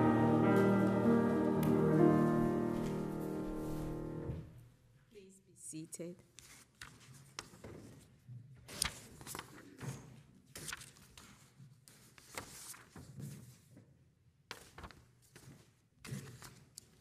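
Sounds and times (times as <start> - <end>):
paper rustling: 8.7 - 9.9, 10.5 - 13.7.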